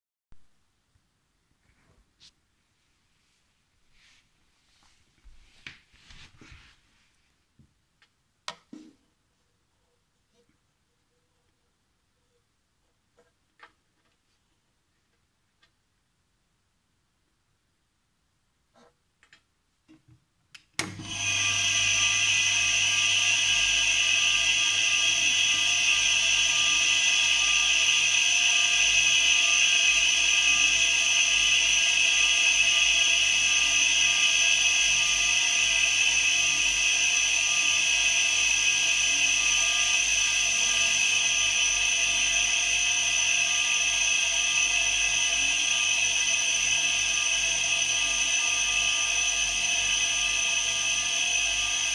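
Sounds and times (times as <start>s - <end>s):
air compressor humming and hissing: 20.8s - 51.9s.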